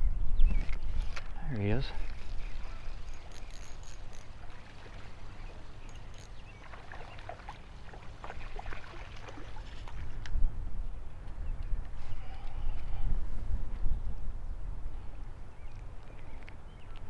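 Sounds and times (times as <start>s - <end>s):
wind rumbling on microphone: 0.0s - 17.0s
fishing reel cranking: 2.8s - 4.4s, 5.8s - 6.5s.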